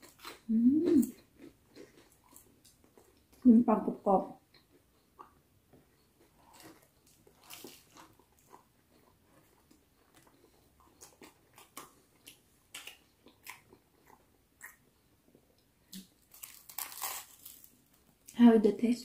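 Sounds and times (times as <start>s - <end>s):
toast crunching while chewed: 0.0s - 3.4s, 6.0s - 14.8s, 16.0s - 18.2s.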